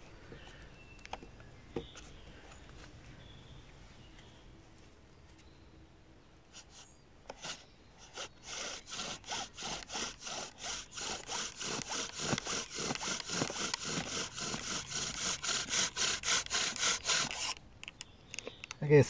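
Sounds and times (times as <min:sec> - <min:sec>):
bow drill spindle grinding and squeaking: 0:06.6 - 0:17.6.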